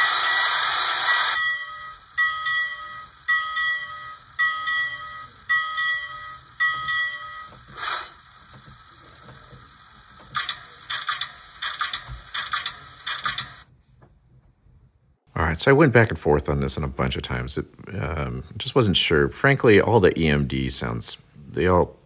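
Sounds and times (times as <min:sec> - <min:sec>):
locomotive bell ringing from speaker: 0:01.1 - 0:07.6.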